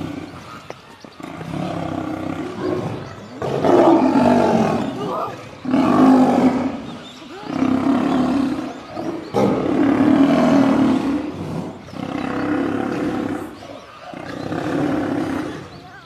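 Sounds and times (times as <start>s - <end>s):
lions snarling and growling: 0.0s - 16.0s.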